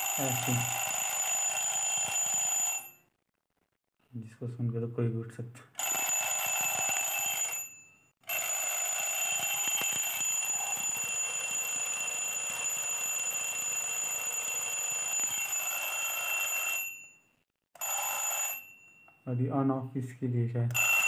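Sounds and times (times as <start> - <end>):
twin-bell alarm clock ringing: 0.0 - 3.0, 5.8 - 17.2, 17.8 - 19.3, 20.8 - 21.0.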